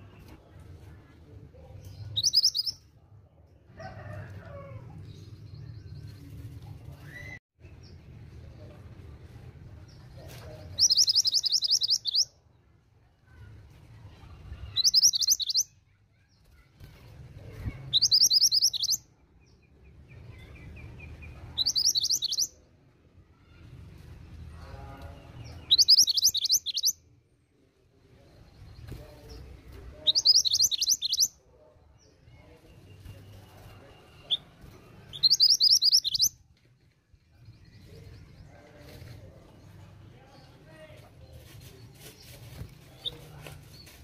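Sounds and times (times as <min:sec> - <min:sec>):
bird trilled calls: 0:10.8 - 0:12.3, 0:25.7 - 0:27.0, 0:35.1 - 0:36.3.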